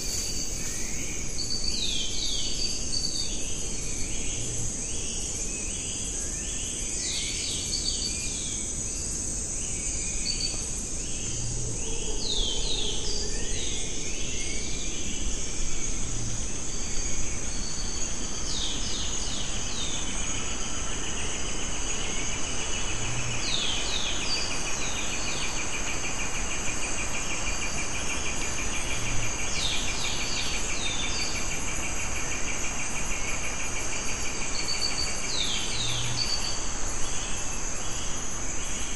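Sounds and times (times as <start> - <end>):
fast pulsing insect trill: 0.0 - 1.9
high insect drone: 0.0 - 38.9.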